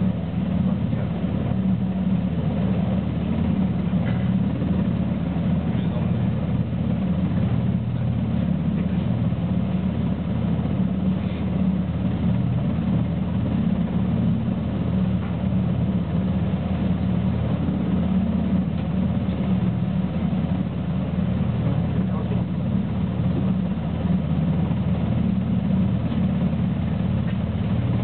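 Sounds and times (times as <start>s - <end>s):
helicopter engines and rotor drone: 0.0s - 28.0s.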